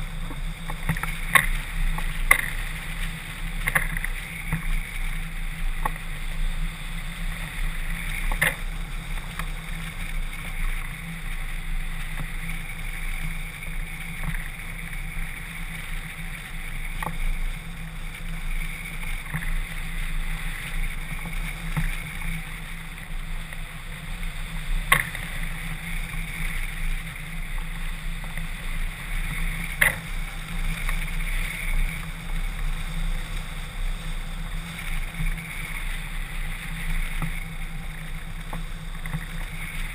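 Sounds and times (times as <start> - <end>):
low hum: 0.0 - 39.9.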